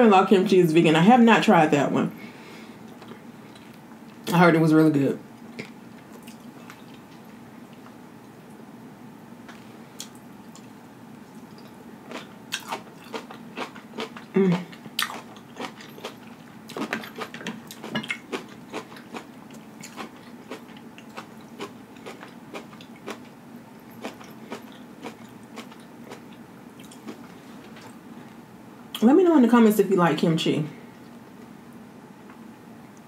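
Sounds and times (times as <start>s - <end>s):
crunchy chewing: 9.4s - 28.4s
person humming: 14.3s - 14.7s.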